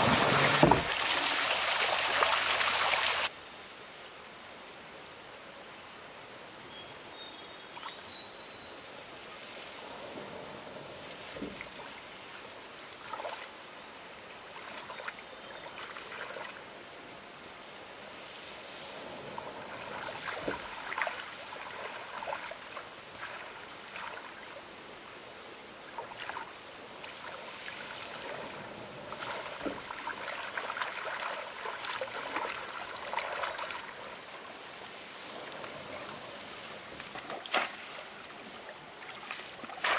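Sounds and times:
muddy water splashing: 0:00.0 - 0:03.3, 0:12.9 - 0:13.6, 0:14.4 - 0:16.6, 0:18.9 - 0:24.6, 0:25.9 - 0:39.9.

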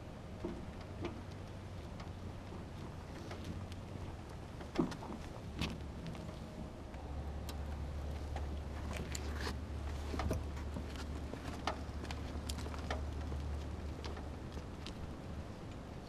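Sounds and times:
low steady rumble: 0:00.0 - 0:16.0
airframe clicks and knocks: 0:00.4 - 0:15.1
small wheels rolling over concrete: 0:07.6 - 0:15.8.

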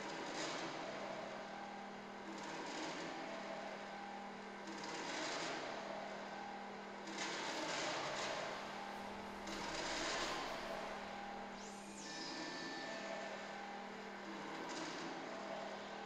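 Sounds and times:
steady electronic hum: 0:07.4 - 0:16.0.

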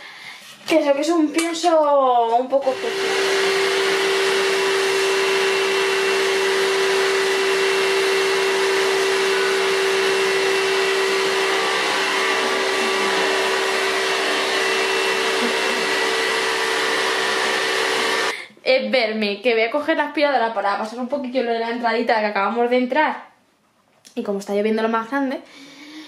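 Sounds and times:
vacuum cleaner motor hum: 0:02.6 - 0:18.4.

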